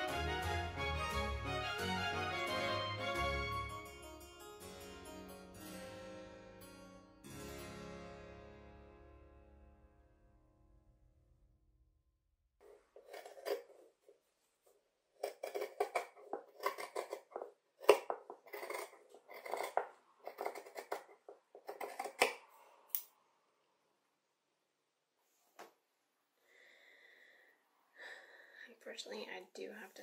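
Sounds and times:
shears snipping fabric: 15.2 - 23.0.

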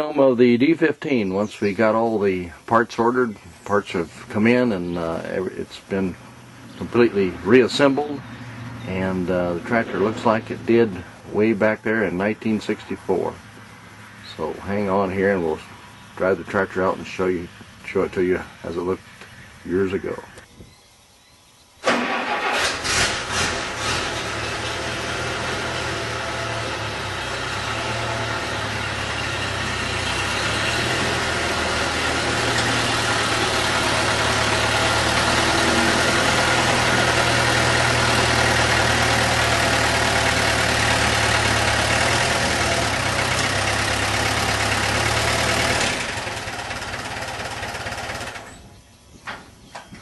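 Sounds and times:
tractor engine running: 0.6 - 20.5, 21.8 - 48.8
low hum: 6.0 - 14.4.

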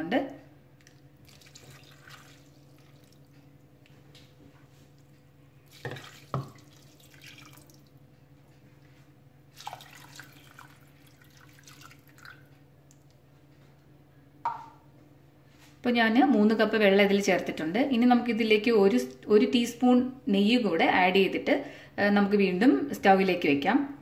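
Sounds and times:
faint steady hum: 0.0 - 24.0
water splashing into pot: 1.3 - 3.2, 5.7 - 7.9, 9.6 - 12.5.

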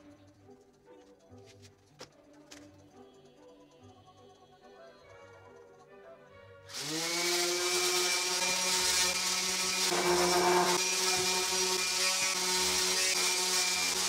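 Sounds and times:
orbital sander running: 6.7 - 14.0.

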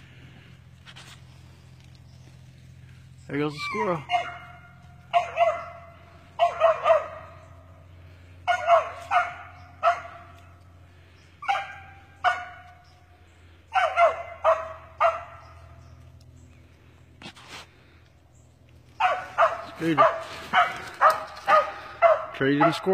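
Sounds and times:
dog barking: 4.0 - 7.4, 8.4 - 10.3, 11.4 - 12.8, 13.7 - 15.5, 19.0 - 22.9.

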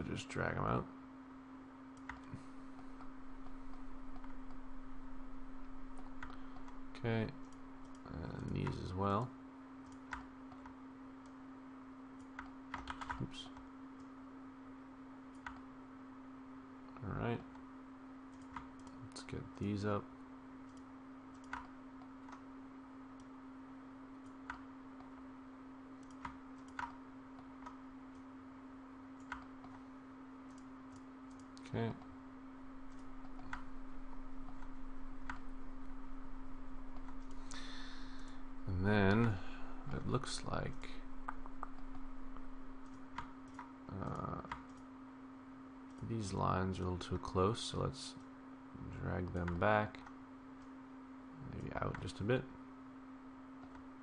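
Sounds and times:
steady low hum: 0.0 - 54.0
computer mouse clicks: 2.0 - 2.4, 7.4 - 8.8, 9.8 - 11.4, 12.2 - 14.1, 15.3 - 15.7, 18.3 - 19.0, 20.6 - 22.5, 26.0 - 28.3, 29.2 - 29.8, 30.4 - 32.1, 32.9 - 33.7, 42.8 - 44.9.

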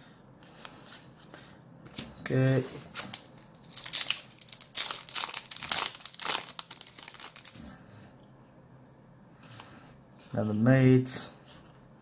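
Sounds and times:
foil wrapper crinkling: 2.9 - 7.7.

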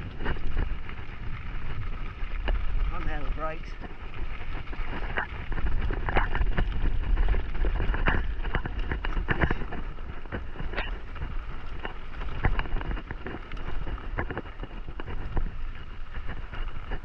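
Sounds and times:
bike clicks and rattles: 0.0 - 17.0
bike tyres crunching gravel: 0.0 - 17.0
wind buffeting microphone: 0.0 - 17.0.

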